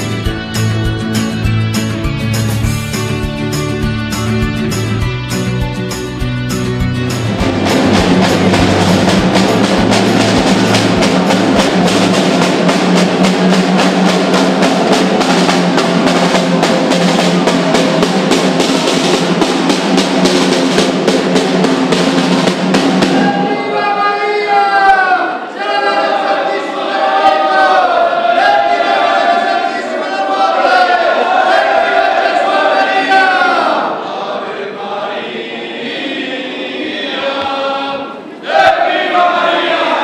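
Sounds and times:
snare drum marching rhythm: 0:07.2 - 0:23.6
voices singing: 0:23.0 - 0:40.0.

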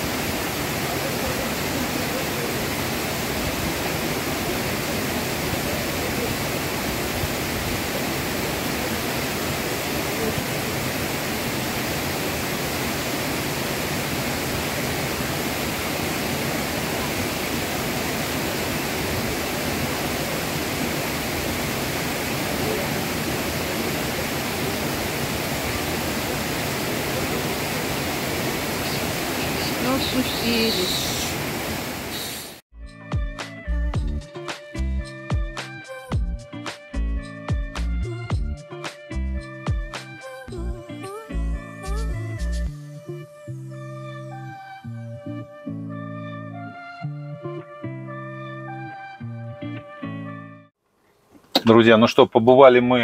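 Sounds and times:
waterfall rushing: 0:00.0 - 0:32.6.

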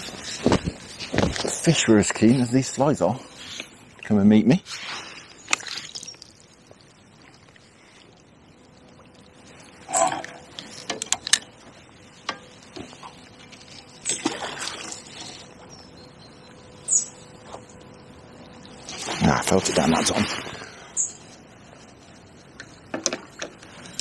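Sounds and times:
flowing river water: 0:12.4 - 0:15.5.

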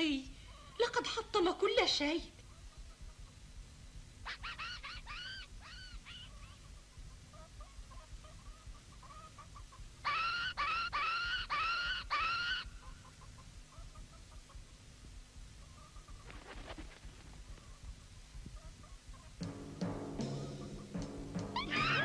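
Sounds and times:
monkey shrill calls: 0:04.2 - 0:06.7, 0:10.0 - 0:12.7, 0:21.6 - 0:22.0
faint monkey chattering: 0:04.2 - 0:14.6.

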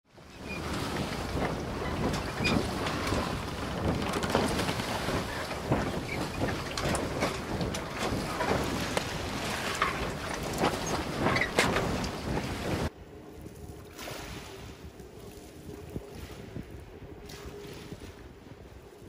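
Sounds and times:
waves washing: 0:00.1 - 0:12.9
wind buffeting microphone: 0:00.1 - 0:19.0.

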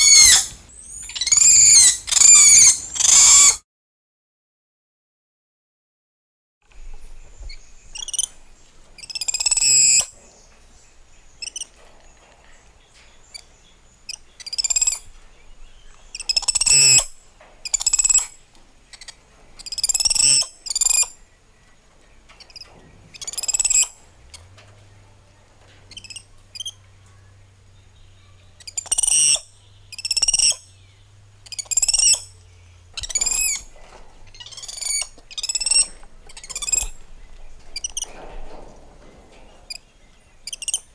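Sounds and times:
monkeys making squeaky calls: 0:00.0 - 0:03.6, 0:09.0 - 0:10.1, 0:16.2 - 0:18.3, 0:19.0 - 0:21.1, 0:25.9 - 0:26.8, 0:28.6 - 0:30.6, 0:31.4 - 0:32.3, 0:33.0 - 0:33.7, 0:34.3 - 0:37.0, 0:40.5 - 0:40.8.

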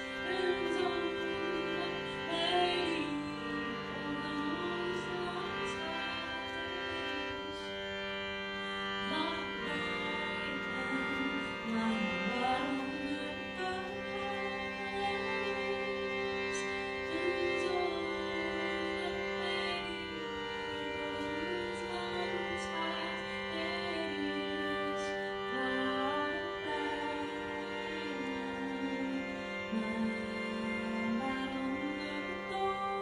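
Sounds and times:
sustained drone: 0:00.0 - 0:07.7
slow gliding melody: 0:00.0 - 0:33.0.

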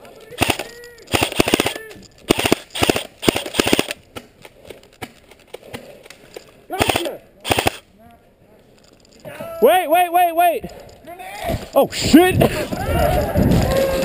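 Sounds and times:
airsoft rifle bursts: 0:00.3 - 0:04.0, 0:06.8 - 0:07.8.

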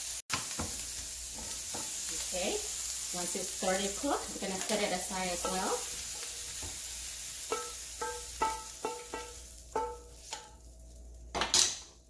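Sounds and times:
faint sizzle: 0:00.0 - 0:12.0
spatula knocking on frying pan: 0:05.4 - 0:05.9, 0:07.5 - 0:10.6.

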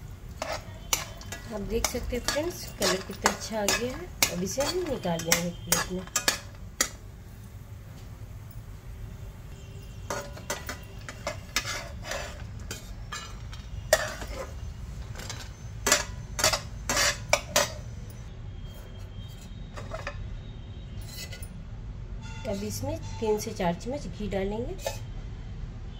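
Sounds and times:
spatula scraping and tapping pan: 0:00.3 - 0:07.0, 0:10.0 - 0:17.9, 0:19.3 - 0:20.2, 0:24.7 - 0:25.1.

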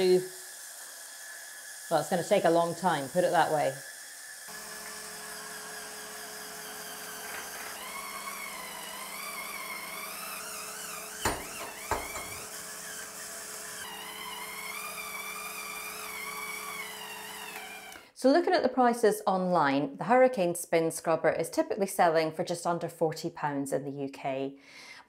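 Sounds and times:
spin scrubber motor whirring: 0:00.0 - 0:18.1
sharp knocks: 0:11.2 - 0:12.4.

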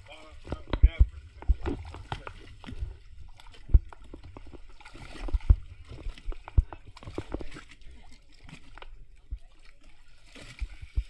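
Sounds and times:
water slapping against boat: 0:00.0 - 0:11.0
low thumps: 0:00.3 - 0:07.4.

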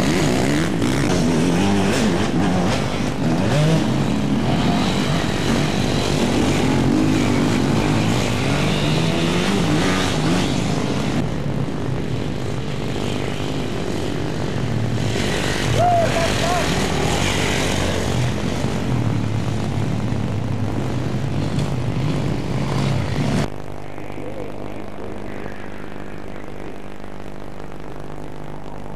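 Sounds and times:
dirt bike engines revving: 0:00.0 - 0:27.4.

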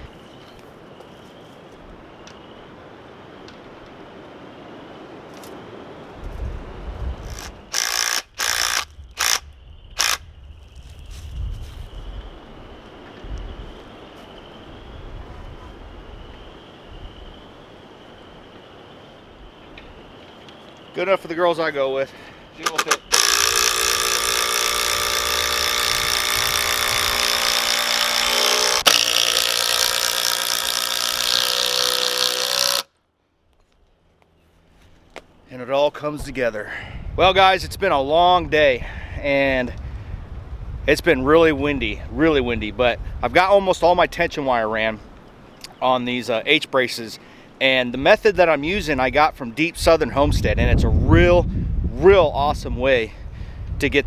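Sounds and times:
wind rumble on microphone: 0:01.8 - 0:07.7, 0:08.8 - 0:20.9, 0:25.0 - 0:27.4, 0:36.1 - 0:45.2, 0:48.0 - 0:54.0
cordless drill into wood: 0:07.2 - 0:09.4, 0:10.0 - 0:10.2, 0:22.6 - 0:32.9
impact driver hammering screw: 0:07.3 - 0:09.4, 0:10.0 - 0:10.2, 0:22.6 - 0:32.9.

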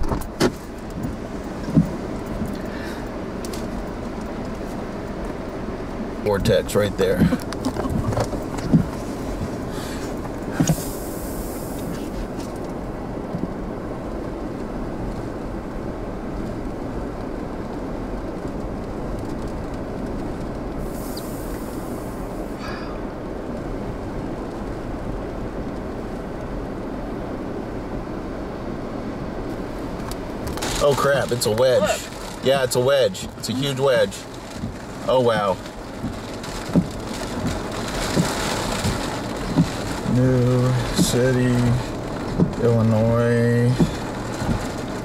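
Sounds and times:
brief higher hisses: 0:20.9 - 0:22.9.

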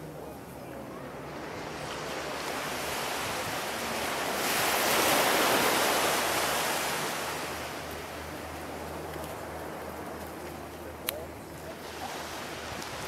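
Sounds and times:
wave breaking on sand: 0:01.5 - 0:07.6.

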